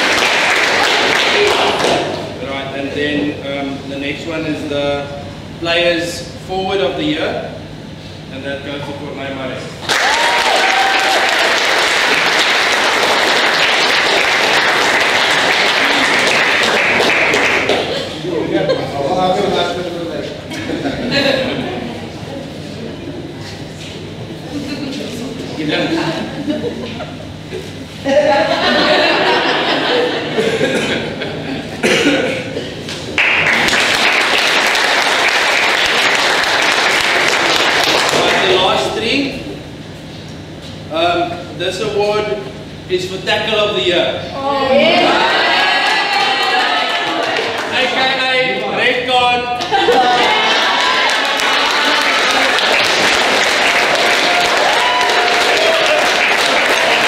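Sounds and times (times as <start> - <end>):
audience clapping: 0.0 - 2.3, 9.8 - 18.2, 32.9 - 38.8, 45.3 - 48.4, 49.6 - 57.0.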